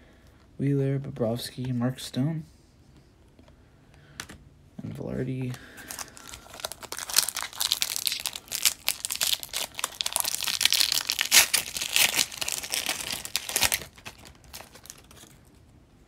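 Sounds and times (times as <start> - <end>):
foil wrapper tearing and crinkling: 5.8 - 15.4.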